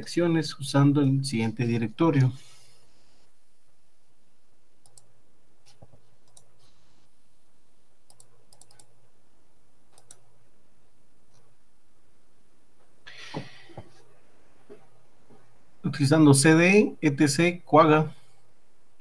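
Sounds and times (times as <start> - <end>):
faint low hum: 0.0 - 19.0
computer clicks: 4.8 - 5.1, 5.7 - 6.5, 8.1 - 8.9, 9.9 - 10.2.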